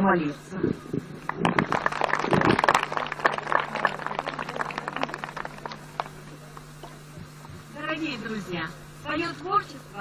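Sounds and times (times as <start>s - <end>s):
audience applauding: 1.3s - 6.7s.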